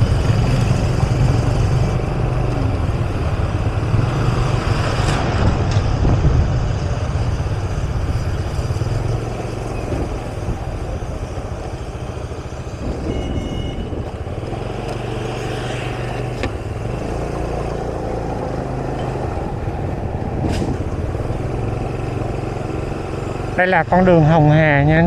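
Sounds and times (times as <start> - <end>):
vehicle engines running: 0.0 - 25.0
two-tone beep: 13.0 - 14.0.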